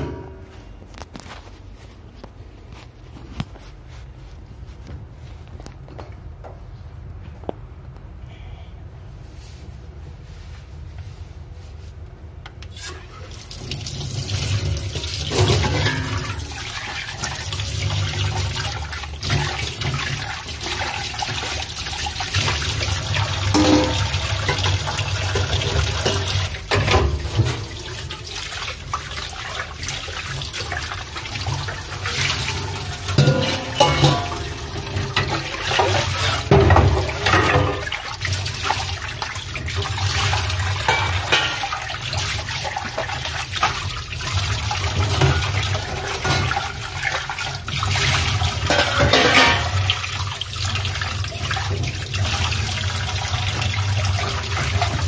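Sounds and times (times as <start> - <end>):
tap water running: 12.7 - 55.0
bowls clattering in sink: 14.9 - 17.4, 23.2 - 28.1, 31.2 - 39.0, 39.8 - 43.9, 44.8 - 50.0.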